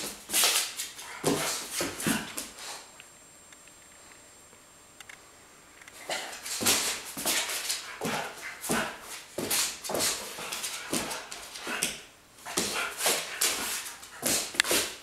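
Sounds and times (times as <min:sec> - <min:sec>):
puppy scuffling on wooden floor: 0:00.0 - 0:02.8, 0:06.1 - 0:15.0.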